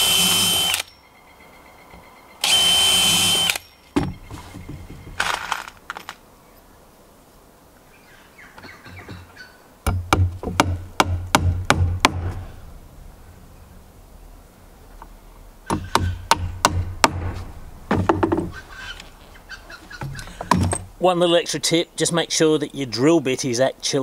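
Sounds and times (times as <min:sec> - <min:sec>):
hammer driving nails into wood: 0:09.9 - 0:12.4.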